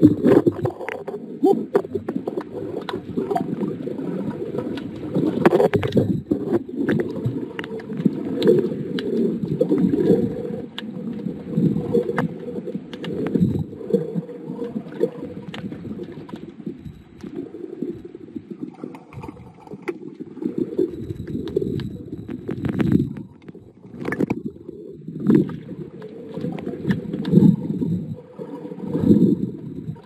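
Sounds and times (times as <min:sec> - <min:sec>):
underwater water sloshing and gurgling: 0:00.0 - 0:30.0
small clicks: 0:04.6 - 0:11.3, 0:11.9 - 0:13.6, 0:25.2 - 0:27.6.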